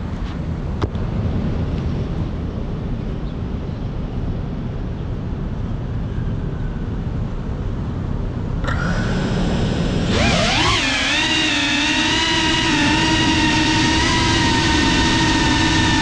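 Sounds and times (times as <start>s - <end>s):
drone motor whine: 8.6s - 16.0s.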